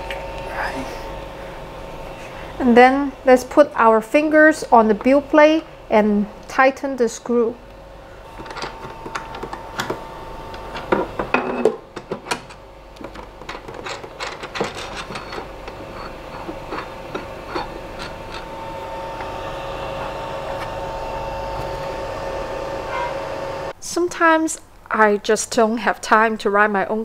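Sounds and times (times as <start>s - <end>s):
steady two-toned whine: 0.0s - 11.8s, 14.7s - 23.8s.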